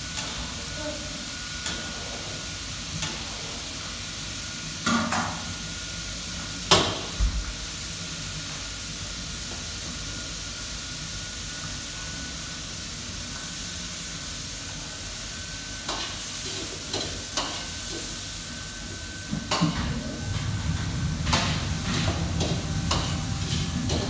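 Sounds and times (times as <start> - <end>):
faint high whine: 18.4 - 24.0.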